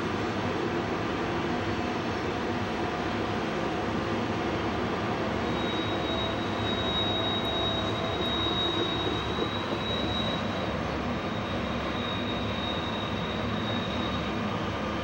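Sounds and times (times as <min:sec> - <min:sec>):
freight train roar: 0:00.0 - 0:15.0
high-pitched wheel squeal: 0:05.4 - 0:14.9.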